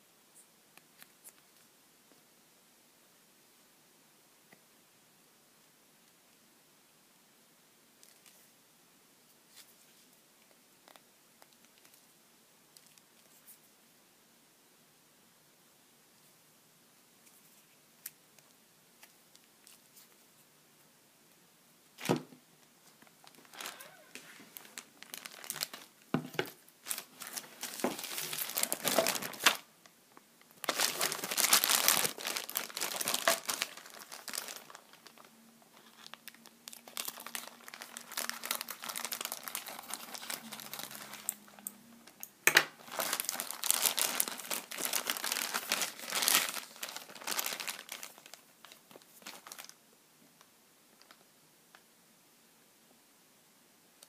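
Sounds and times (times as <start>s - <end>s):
plastic bags crinkling: 23.0s - 29.7s, 30.4s - 49.8s.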